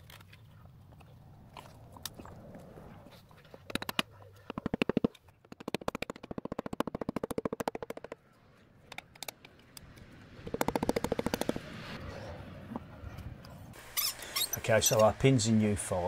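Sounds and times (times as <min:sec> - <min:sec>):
ratchet clicking rapidly: 0:10.4 - 0:11.6.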